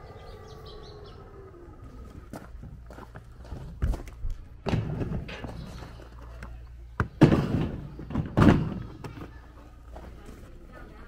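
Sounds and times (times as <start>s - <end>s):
plastic boxes thunking into cart: 7.0s - 9.3s.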